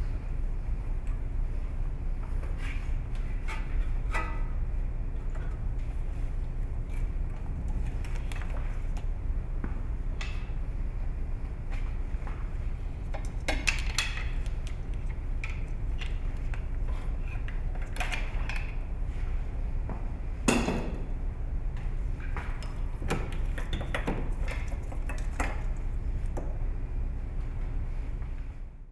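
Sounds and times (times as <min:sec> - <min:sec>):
steady low hum: 0:00.0 - 0:28.9.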